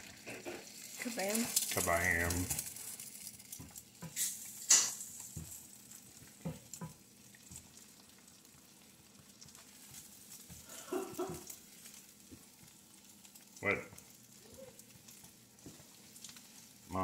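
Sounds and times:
egg sizzling in a frying pan: 0.0s - 17.0s.

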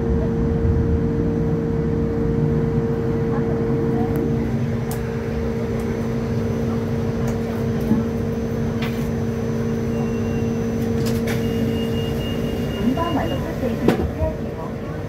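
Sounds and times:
electrical hum and rumble: 0.0s - 15.0s.

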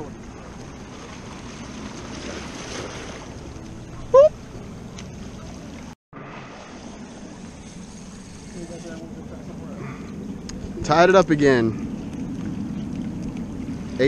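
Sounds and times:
wind on microphone: 7.2s - 14.0s.

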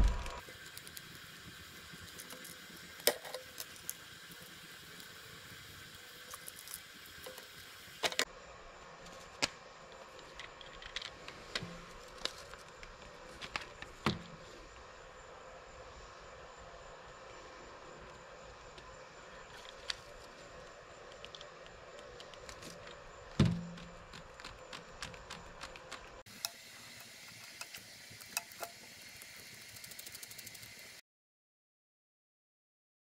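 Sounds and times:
plastic parts clicking and tapping: 21.2s - 26.6s.

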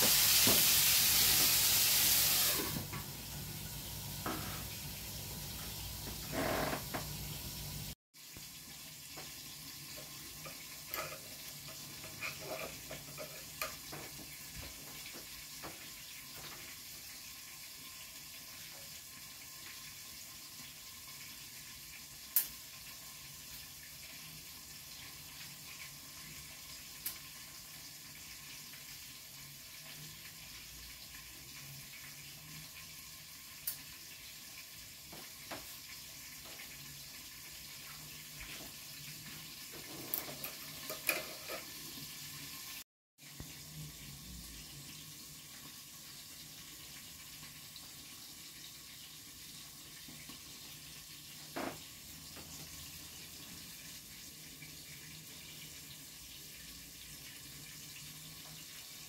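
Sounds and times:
tap running into sink: 0.0s - 1.6s, 35.1s - 35.8s, 51.4s - 52.8s.

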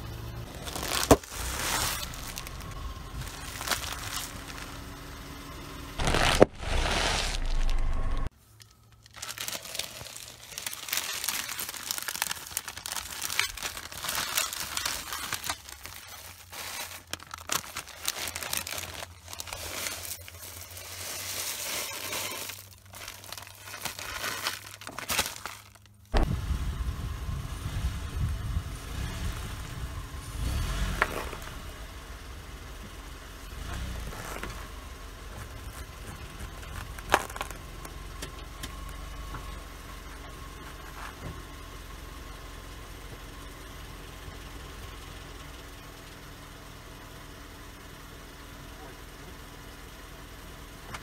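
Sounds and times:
car engine running low: 0.0s - 51.0s
crisp bag crinkling: 0.5s - 4.9s, 6.0s - 26.2s, 33.9s - 34.7s, 35.3s - 37.9s
chips pattering on asphalt: 35.3s - 37.9s.

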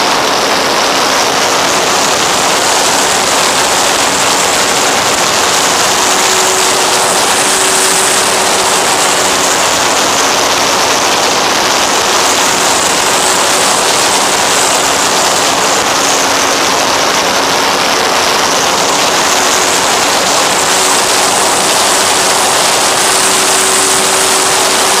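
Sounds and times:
propeller motor hum: 0.0s - 25.0s
rush of airflow: 0.0s - 25.0s.

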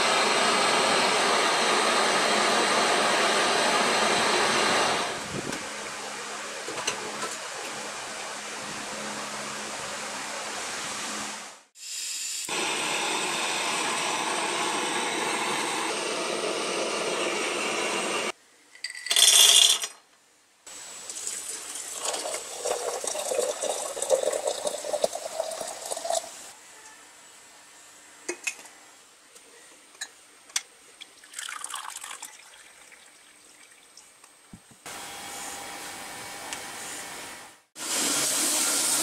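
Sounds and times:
hot water poured into teapot: 21.0s - 26.5s, 31.2s - 34.0s.

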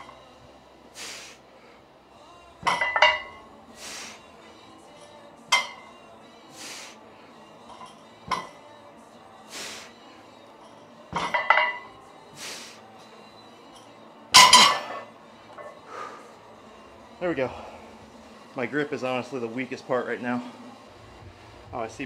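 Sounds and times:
breathy hisses: 0.9s - 2.0s, 3.6s - 4.5s, 6.4s - 7.5s, 9.3s - 10.2s, 12.2s - 13.0s, 15.8s - 16.9s.

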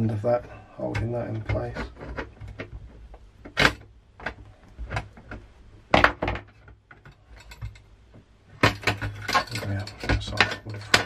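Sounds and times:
metal lever bars clinking: 8.6s - 11.0s.

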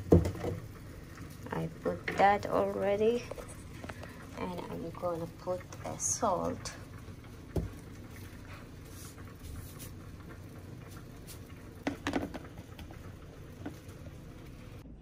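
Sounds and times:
light clicks and taps: 3.2s - 4.7s
salt pouring into plastic tub: 8.0s - 12.9s.

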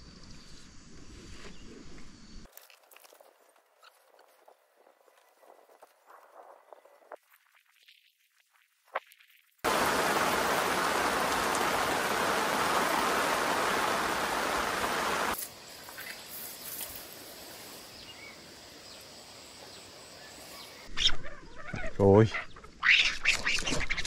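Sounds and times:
faint steady hiss with ticks: 8.9s - 13.9s, 14.5s - 19.1s
heavy rain hissing: 9.6s - 15.7s.

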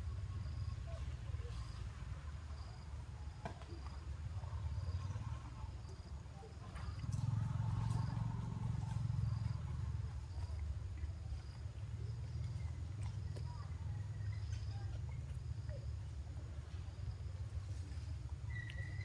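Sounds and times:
insect chirping: 0.0s - 1.9s, 4.5s - 10.7s, 16.9s - 19.0s
steady low rumble: 6.9s - 10.8s.

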